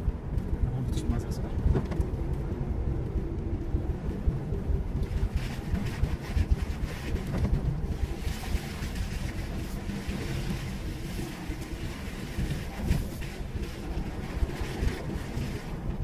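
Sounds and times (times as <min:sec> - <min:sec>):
engine and tyre rumble: 0:00.0 - 0:16.0.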